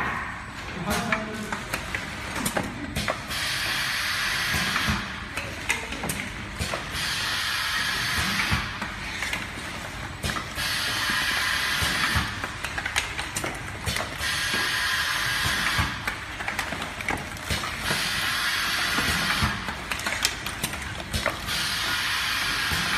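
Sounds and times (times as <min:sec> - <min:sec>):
packaging machine hissing: 0:03.0 - 0:05.3, 0:06.6 - 0:22.9.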